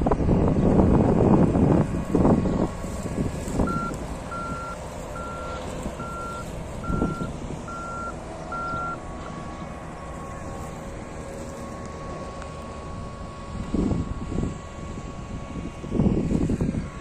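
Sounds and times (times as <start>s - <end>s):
wind buffeting microphone: 0.0s - 17.0s
reversing alarm beeping: 3.6s - 9.1s.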